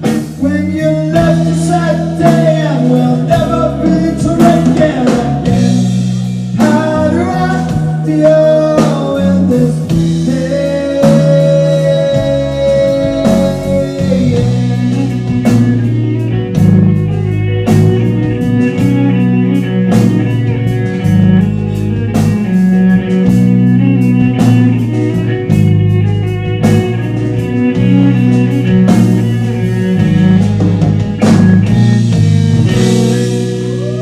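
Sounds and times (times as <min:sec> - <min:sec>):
bass guitar: 0:00.0 - 0:34.0
drum kit: 0:00.0 - 0:34.0
electric guitar: 0:00.0 - 0:34.0
violin: 0:10.0 - 0:34.0.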